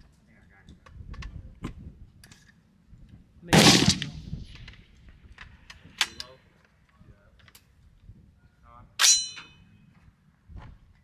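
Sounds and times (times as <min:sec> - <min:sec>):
gunshot: 0:03.5 - 0:04.4.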